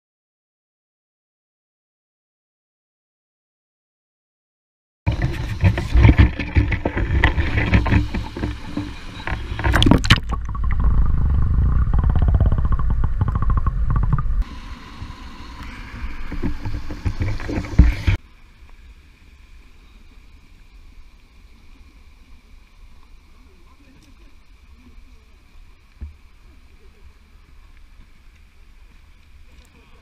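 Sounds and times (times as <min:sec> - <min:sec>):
camera knocks and scrapes: 0:05.1 - 0:14.4, 0:16.1 - 0:18.2
muffled underwater stream rushing: 0:05.1 - 0:30.0
faint open-air ambience: 0:14.4 - 0:30.0.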